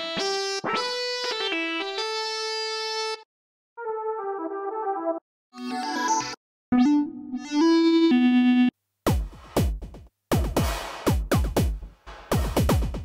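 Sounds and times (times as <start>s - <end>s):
electronic drum pattern: 9.1s - 13.0s.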